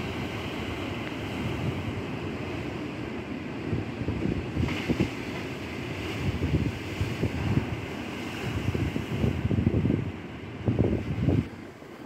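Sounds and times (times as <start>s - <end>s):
wind on microphone: 0.0s - 11.7s
sea waves washing: 0.0s - 12.0s.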